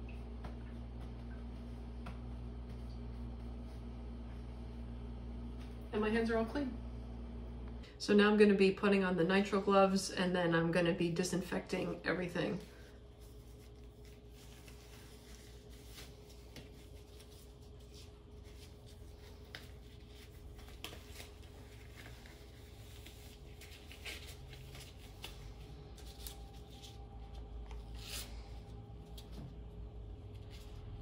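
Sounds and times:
faint steady hum: 0.0s - 31.0s
rubber gloves rustling: 12.5s - 29.4s.

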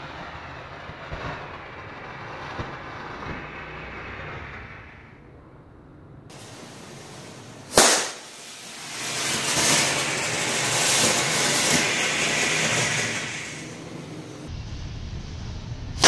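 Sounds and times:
sharp crack: 0.7s - 5.1s, 6.3s - 13.9s
firework rocket motor hissing: 6.3s - 16.0s.

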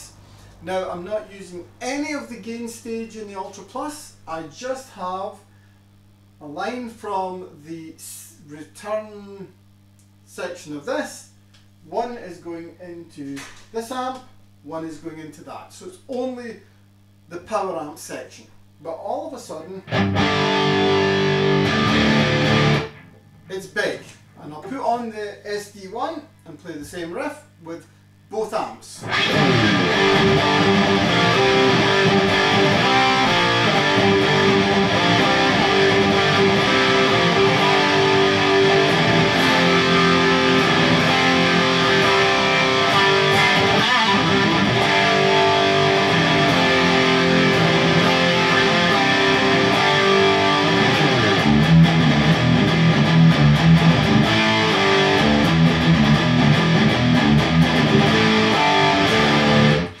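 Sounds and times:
overdriven electric guitar riff: 19.8s - 23.2s, 29.0s - 60.0s.

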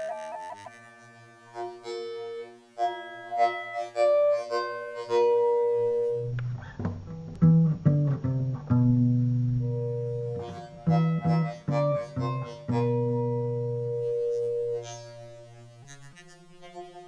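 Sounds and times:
pitch-shifted sustained notes: 0.0s - 6.4s
low steady tone: 5.2s - 15.5s.

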